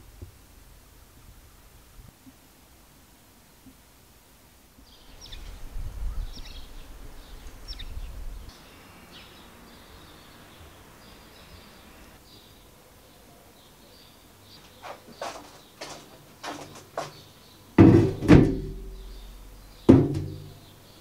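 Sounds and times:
small birds chirping: 0:04.8 - 0:21.0.

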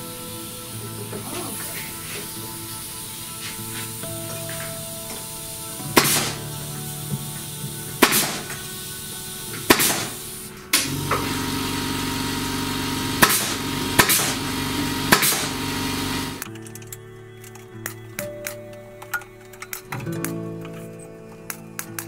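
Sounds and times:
background music: 0:00.0 - 0:11.5, 0:12.2 - 0:22.0
nail gun shots with air puff: 0:05.8 - 0:07.2, 0:07.9 - 0:11.4, 0:13.0 - 0:16.4.

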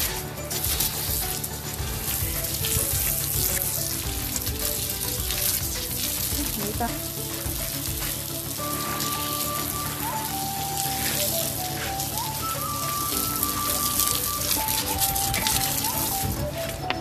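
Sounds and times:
hose water spraying: 0:00.0 - 0:17.0
water splashing: 0:00.0 - 0:17.0.

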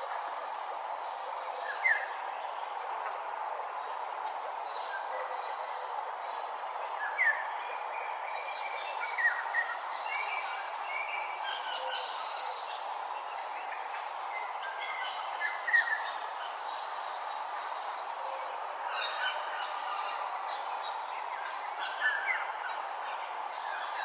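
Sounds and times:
outdoor ambience hiss: 0:00.0 - 0:24.0
birds chirping and singing: 0:18.8 - 0:22.9.

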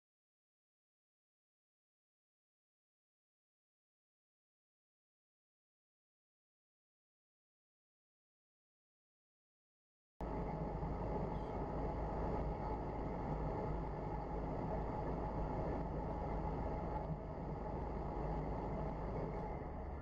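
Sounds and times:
low background rumble: 0:10.2 - 0:20.0.

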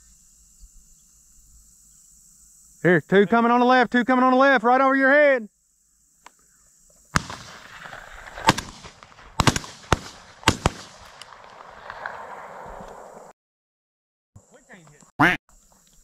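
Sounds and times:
shotgun shots with echo: 0:07.2 - 0:13.0.

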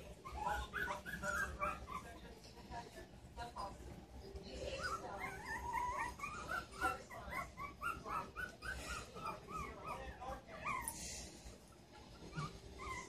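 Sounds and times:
puppies whimpering: 0:00.0 - 0:02.2, 0:04.6 - 0:11.2, 0:11.8 - 0:13.0.

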